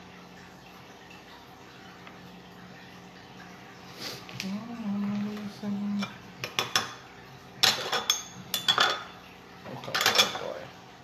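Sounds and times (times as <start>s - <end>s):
metal utensils and dishes clinking: 7.6s - 9.1s, 9.8s - 10.6s.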